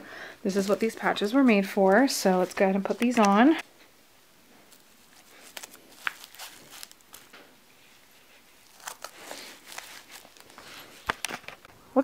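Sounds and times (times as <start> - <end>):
velcro crackling and rustling: 4.7 - 11.7.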